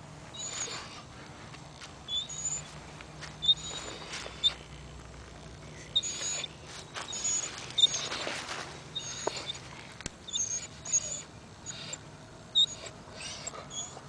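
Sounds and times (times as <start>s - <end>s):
breathy rustles: 0.3s - 10.6s
high-pitched animal squeaks: 2.1s - 2.7s, 3.4s - 4.9s, 5.7s - 8.3s, 8.9s - 9.6s, 10.3s - 12.0s, 12.6s - 14.0s.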